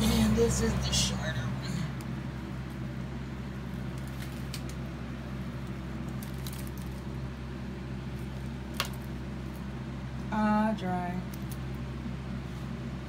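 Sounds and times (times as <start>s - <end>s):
box fan humming: 0.0s - 13.0s.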